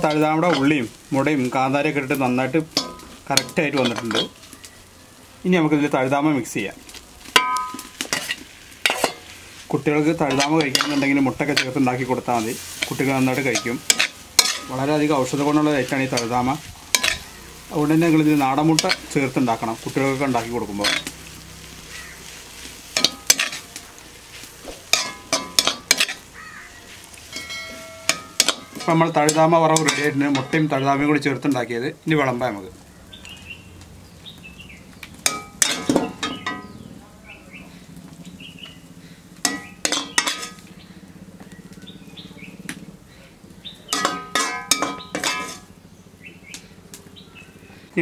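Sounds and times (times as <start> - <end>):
metal ladle scraping a wok: 0.0 - 4.4, 7.3 - 30.7, 39.4 - 40.7, 43.9 - 45.7
light sizzling: 0.0 - 48.0
metal spoon clinking on plate: 24.9 - 26.2, 27.3 - 30.5, 39.4 - 40.6, 43.9 - 45.7.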